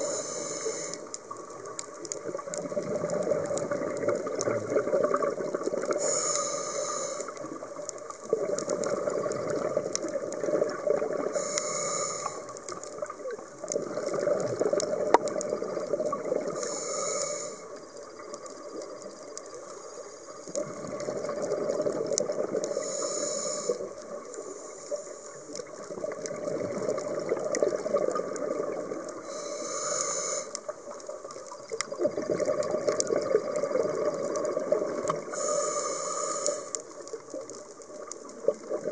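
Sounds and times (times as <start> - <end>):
hissing regulator inhale: 0.0 - 1.3, 6.0 - 7.5, 11.3 - 12.8, 16.5 - 17.8, 22.6 - 25.5, 29.2 - 30.8, 35.2 - 37.0.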